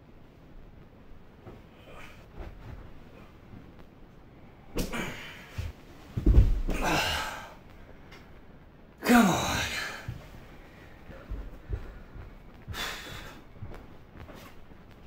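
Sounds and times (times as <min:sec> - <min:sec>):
heavy thump on stairs: 0:04.8 - 0:07.2, 0:11.0 - 0:14.5
man groaning sigh: 0:06.7 - 0:07.6
man straining: 0:06.7 - 0:07.6.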